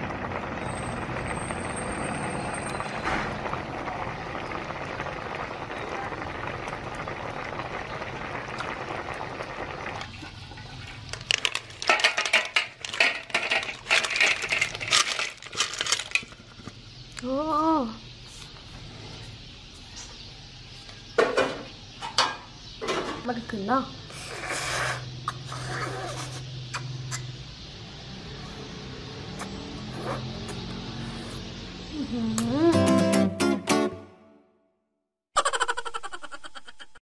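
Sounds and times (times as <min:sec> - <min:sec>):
hard objects clinking and clattering: 0:11.0 - 0:16.7.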